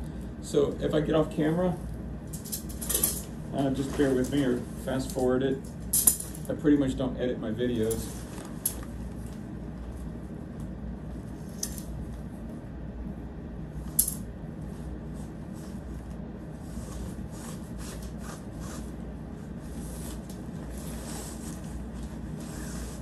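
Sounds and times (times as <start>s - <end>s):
low steady hum: 0.0s - 23.0s
tent fabric rustling: 19.6s - 23.0s.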